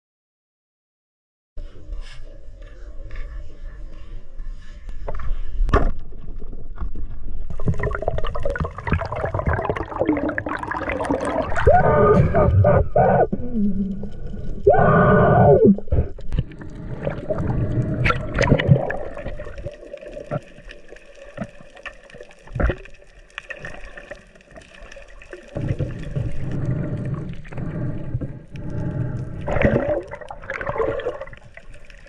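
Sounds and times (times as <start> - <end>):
muffled underwater movement: 1.6 - 32.0
bending moan: 11.1 - 16.3.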